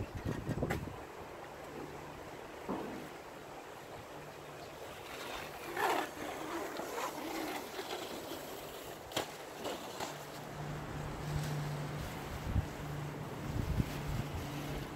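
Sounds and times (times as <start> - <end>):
steady outdoor noise: 0.0 - 14.9
rustling and crackling: 4.8 - 14.9.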